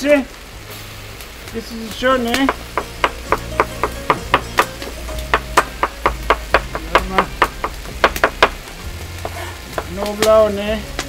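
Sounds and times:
knife chopping on wooden board: 2.4 - 8.6.

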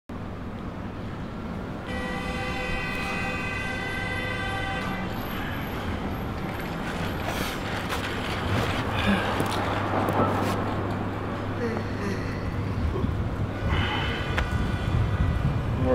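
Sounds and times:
street traffic rumble: 0.1 - 15.9.

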